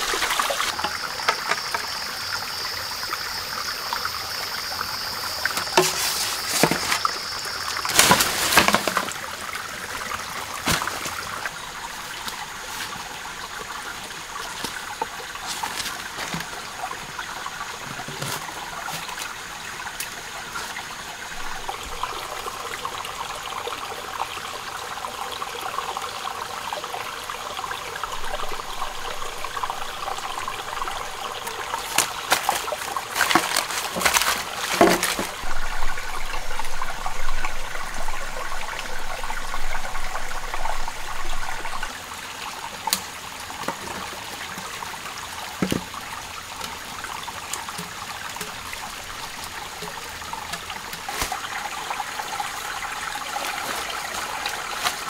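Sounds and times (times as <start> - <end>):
stream trickling over rocks: 0.0 - 55.0
sharp knocks and clatter: 31.9 - 35.4.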